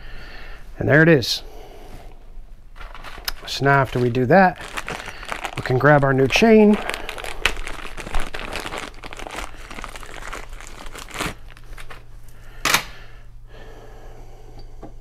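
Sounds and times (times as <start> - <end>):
plastic packaging crinkling: 2.7 - 12.1.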